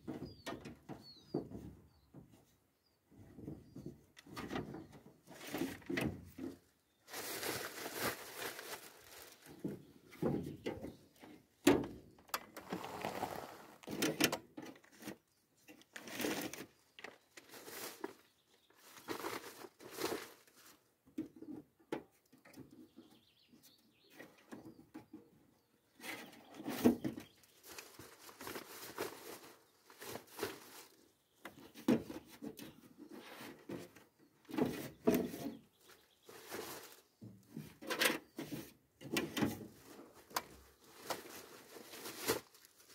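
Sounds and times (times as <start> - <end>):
paper rustling: 12.6 - 14.0.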